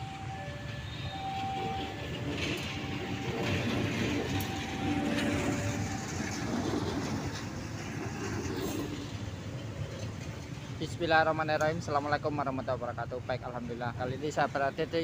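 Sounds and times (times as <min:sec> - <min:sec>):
locomotive engine running: 0:00.0 - 0:10.8
train wheels on rails: 0:00.0 - 0:15.0.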